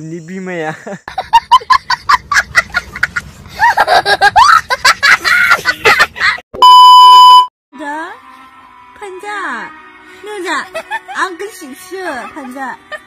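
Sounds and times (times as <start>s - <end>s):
young child laughing: 2.2s - 6.4s.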